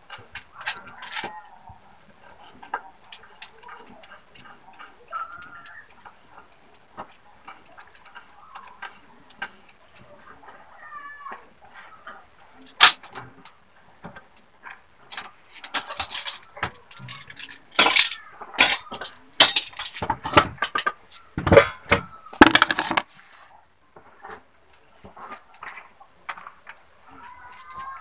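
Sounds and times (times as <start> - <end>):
dishes and utensils clinking: 15.1 - 23.0.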